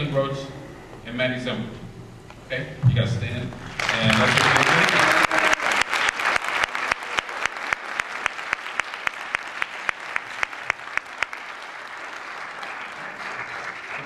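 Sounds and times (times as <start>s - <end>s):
audience applause: 3.7s - 14.0s.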